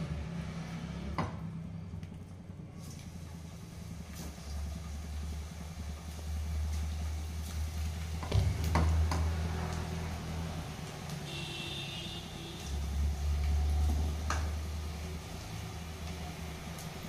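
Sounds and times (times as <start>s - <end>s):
oil crackles: 1.9s - 17.0s
batter sizzling in hot oil: 2.8s - 17.0s.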